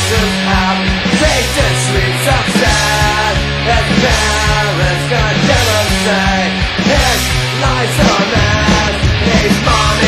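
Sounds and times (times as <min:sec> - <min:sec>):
rock music with drum beat: 0:00.0 - 0:10.0.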